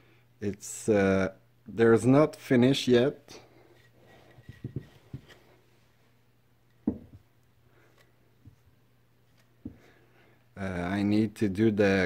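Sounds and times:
wooden objects knocking on table: 4.5 - 5.2, 6.8 - 7.2.

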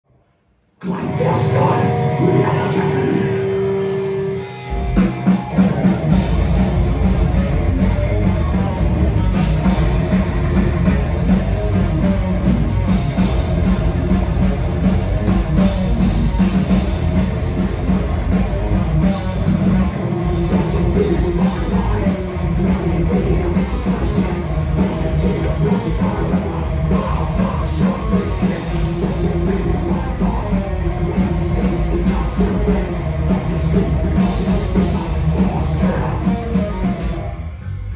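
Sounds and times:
bass guitar: 0.8 - 37.9
electric guitar: 0.8 - 37.9
drum kit: 2.1 - 37.9.

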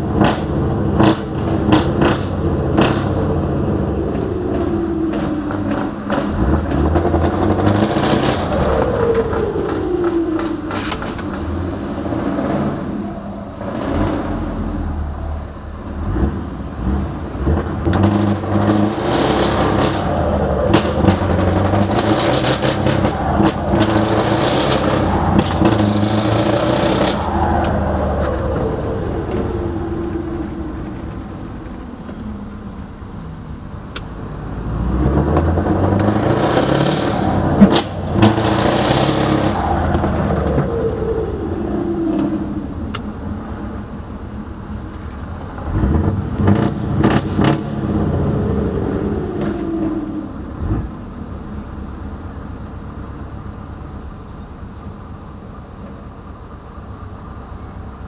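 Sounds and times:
truck engine revving under load: 0.0 - 53.5.

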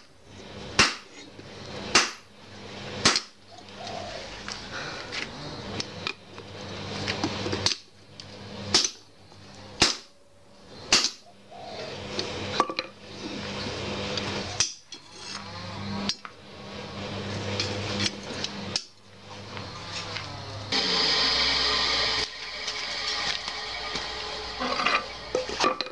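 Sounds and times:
steady low hum: 0.0 - 25.9
hammer striking hot steel on anvil: 0.8 - 1.1, 1.9 - 2.3, 3.0 - 3.3, 8.7 - 9.0, 9.8 - 10.1, 10.9 - 11.2, 14.6 - 14.9.

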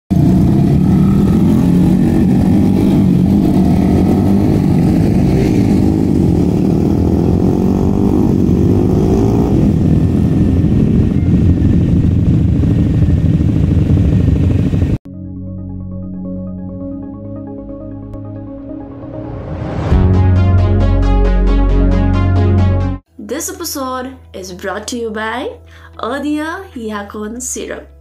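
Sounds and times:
racing motorcycles revving past: 0.1 - 13.5.

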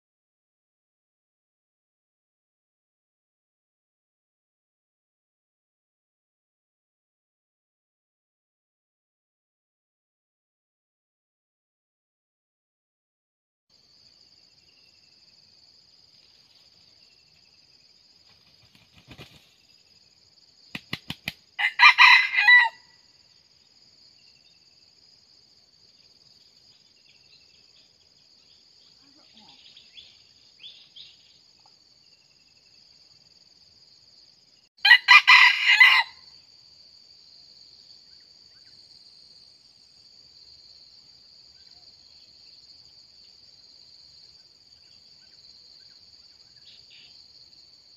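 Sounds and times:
high-pitched insect trill: 13.8 - 47.9
wing claps: 20.7 - 21.4
rooster crowing: 21.6 - 23.0, 34.8 - 36.3.

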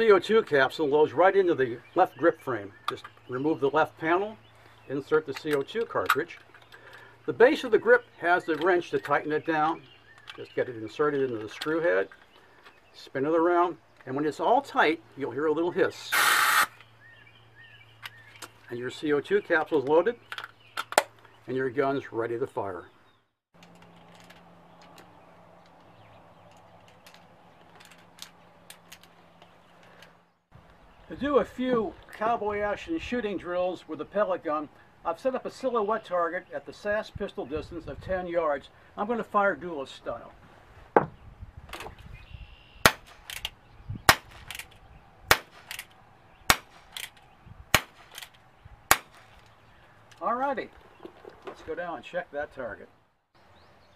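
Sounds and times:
revolver cylinder metallic clicks: 42.9 - 43.6, 44.3 - 50.2.

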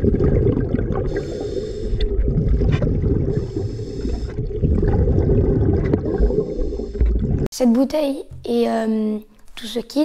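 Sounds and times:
underwater bubbling rumble: 0.0 - 7.5
hissing regulator inhalations: 1.0 - 2.2, 3.3 - 4.5, 6.2 - 7.4.

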